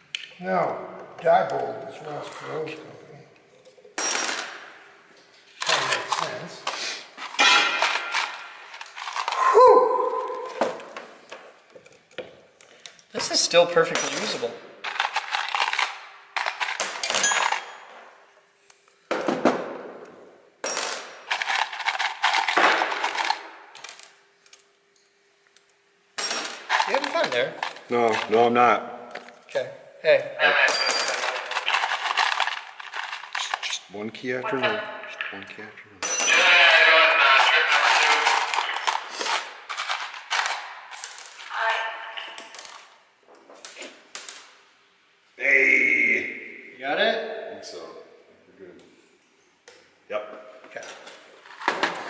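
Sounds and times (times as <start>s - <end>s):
metal tools clinking and rattling: 7.3s - 9.4s, 13.9s - 17.8s, 26.2s - 28.4s, 30.7s - 33.8s, 36.0s - 36.5s, 38.0s - 41.5s.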